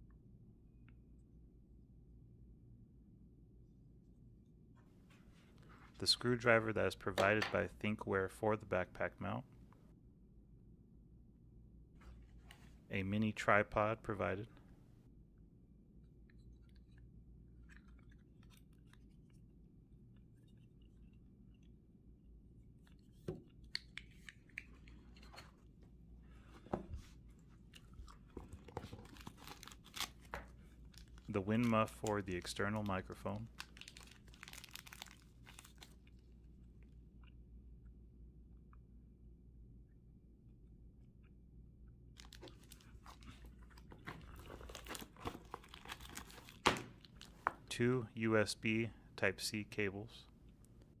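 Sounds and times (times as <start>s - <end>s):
packaging crinkling: 27.7s - 36.2s, 42.2s - 47.6s.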